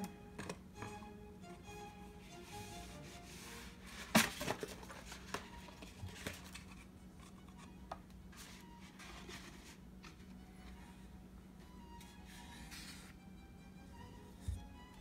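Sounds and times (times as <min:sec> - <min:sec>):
soft handling rustle: 0:02.9 - 0:07.7.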